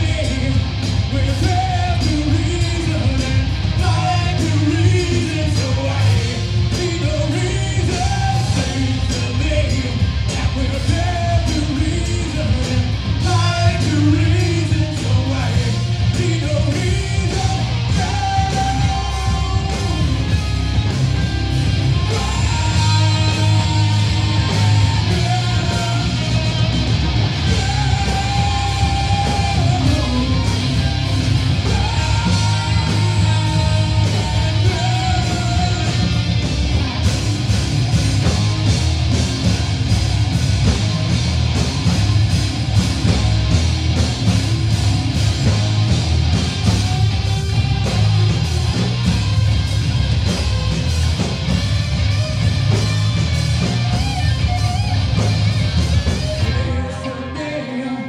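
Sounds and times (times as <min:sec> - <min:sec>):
drums: 0:00.0 - 0:58.0
electric guitars: 0:00.0 - 0:58.0.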